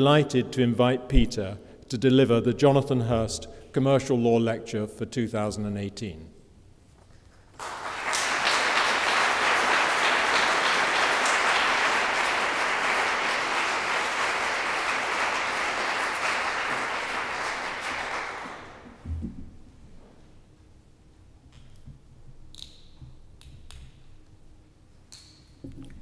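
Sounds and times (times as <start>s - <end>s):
audience applauding: 7.5s - 19.0s.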